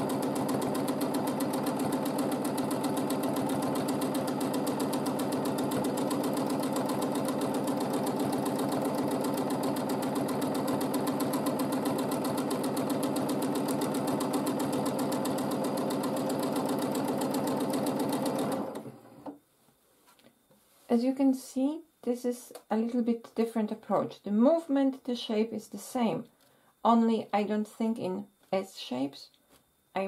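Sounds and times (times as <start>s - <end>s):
sewing machine running: 0.0s - 19.3s.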